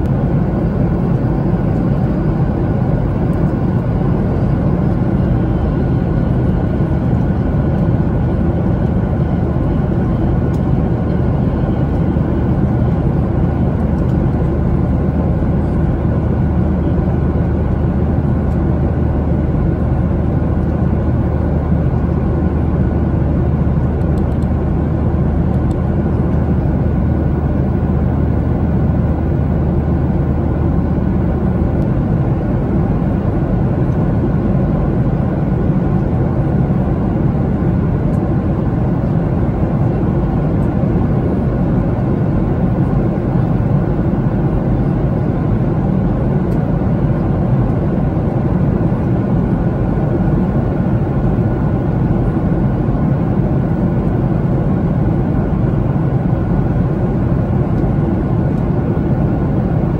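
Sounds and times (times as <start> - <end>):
airplane cabin engine roar: 0.0 - 59.9.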